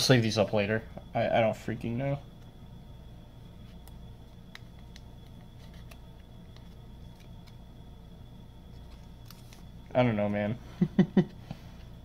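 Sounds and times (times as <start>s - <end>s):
faint high whine: 0.0s - 12.0s
steady low hum: 0.0s - 12.0s
plastic card sleeve crinkling: 3.6s - 7.6s, 8.6s - 9.9s.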